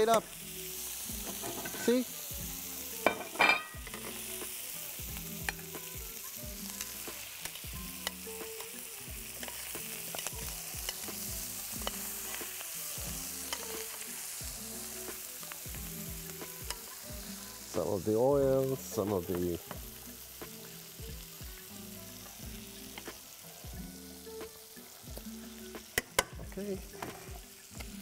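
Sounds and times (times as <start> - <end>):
chicken sizzling in a frying pan: 0.0 - 28.0
metal tongs clicking on pan: 9.4 - 11.2, 13.4 - 14.0, 25.9 - 26.4.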